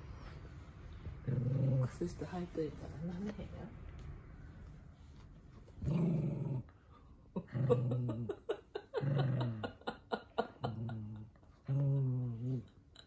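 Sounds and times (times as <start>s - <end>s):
dog growling: 1.2s - 2.0s, 5.8s - 6.7s.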